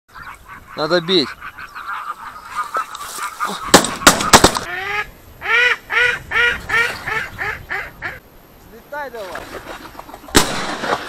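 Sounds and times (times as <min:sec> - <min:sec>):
geese honking: 0:00.1 - 0:08.2
shotgun shots: 0:03.7 - 0:04.7, 0:10.3 - 0:11.0.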